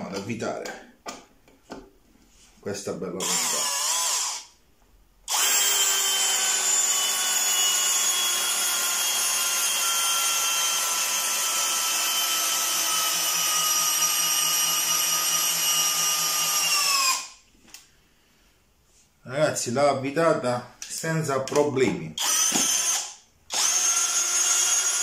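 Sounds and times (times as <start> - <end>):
cordless drill motor whine: 3.2 - 4.5, 5.3 - 17.3, 22.2 - 25.0.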